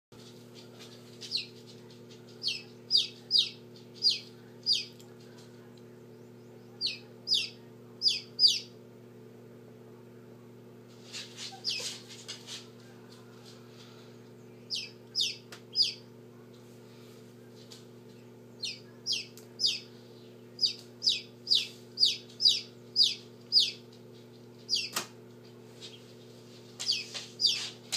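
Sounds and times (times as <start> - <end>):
incubator hum: 0.2 - 27.9
chick peeping: 0.8 - 5.2, 6.1 - 8.8, 11.4 - 12.0, 14.6 - 16.1, 18.2 - 25.1, 26.8 - 27.8.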